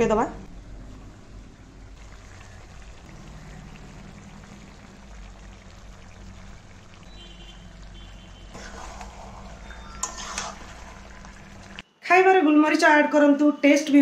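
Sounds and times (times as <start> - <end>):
spatula scraping through meat: 8.5 - 11.0.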